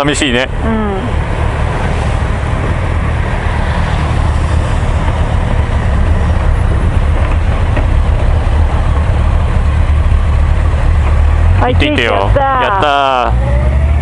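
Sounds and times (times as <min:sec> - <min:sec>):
motorcycle engines idling: 0:04.5 - 0:13.3.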